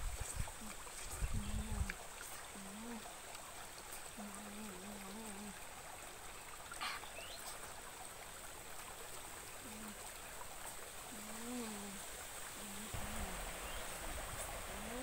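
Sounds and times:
running stream water: 0.0 - 15.0
woman humming while eating: 4.2 - 5.6, 11.2 - 12.0, 12.6 - 13.4.

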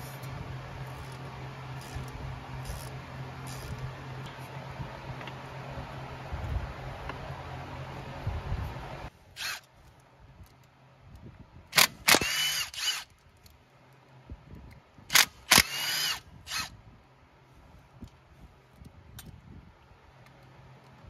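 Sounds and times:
cordless driver whirring: 0.1 - 4.0, 9.3 - 9.7, 11.8 - 13.3, 15.1 - 16.8
sharp loud clicks: 11.7 - 13.1, 15.1 - 16.7.

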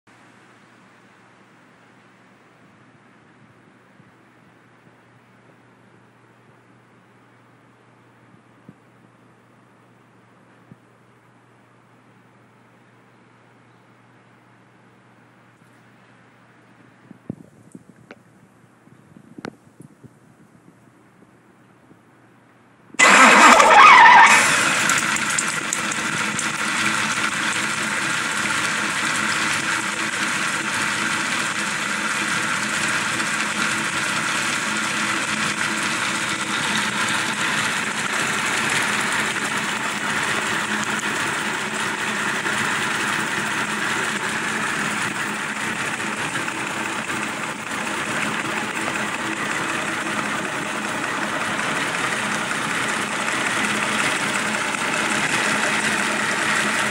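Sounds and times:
car engine starting and idling: 23.0 - 56.9.

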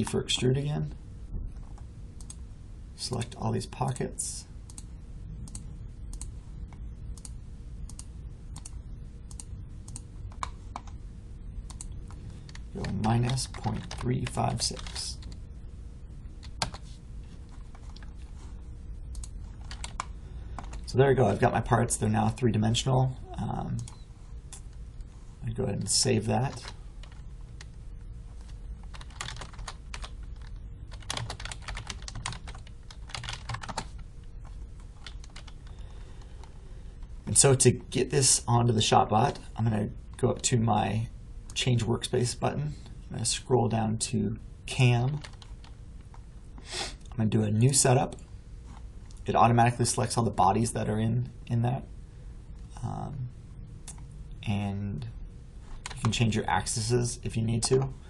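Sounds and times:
faint low hum: 0.0 - 58.0
computer mouse clicking: 1.6 - 2.4, 4.7 - 6.3, 7.2 - 11.0, 11.7 - 14.1, 19.1 - 20.9
typing on computer keyboard: 12.5 - 14.1, 14.7 - 15.4, 19.2 - 20.8, 28.9 - 34.0, 35.0 - 35.8, 45.2 - 45.8.

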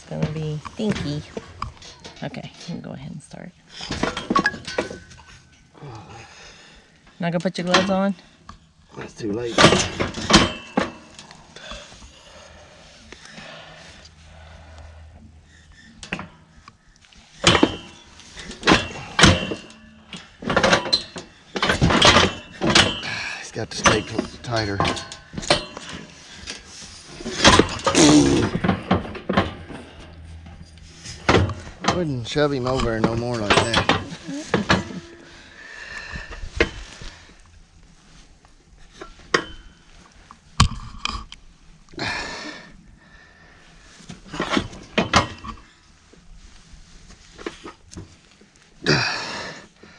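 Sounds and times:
steel chute clanging and rattling: 0.0 - 5.6, 8.9 - 11.3, 17.3 - 35.4.

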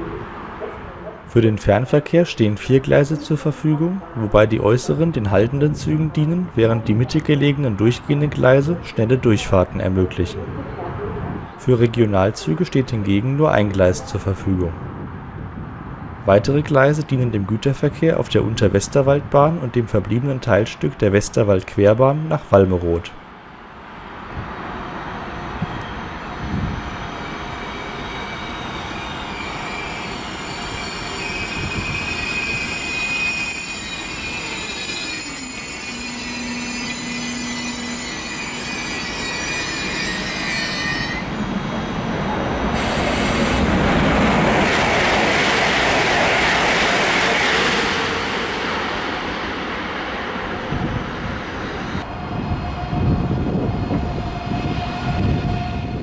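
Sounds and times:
train motor whine: 25.5 - 45.8.

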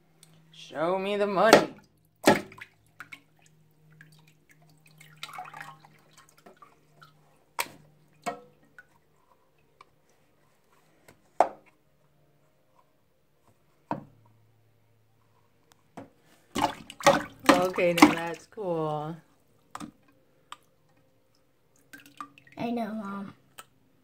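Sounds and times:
drips into water: 1.8 - 9.0, 19.6 - 22.6.

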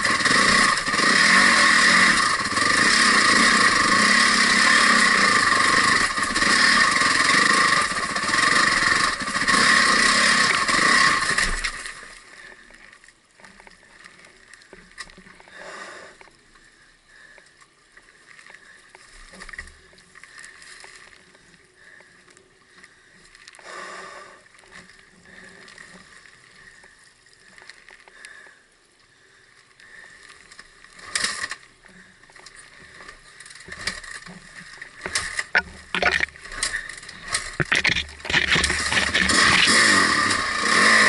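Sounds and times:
motorbike engine: 37.6 - 41.0.

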